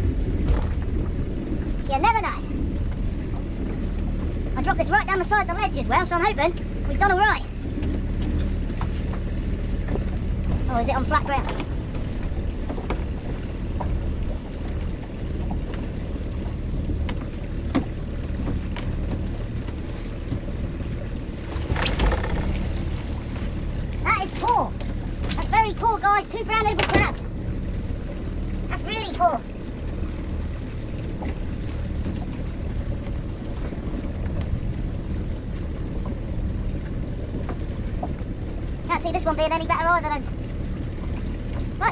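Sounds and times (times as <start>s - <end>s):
knocks against hull: 0.0s - 1.2s, 16.9s - 20.5s, 21.4s - 23.0s
wind on microphone: 0.0s - 4.6s
outboard motor idling: 0.0s - 41.9s
steady low rumble: 0.0s - 41.9s
rope knocking and rubbing: 21.6s - 22.8s.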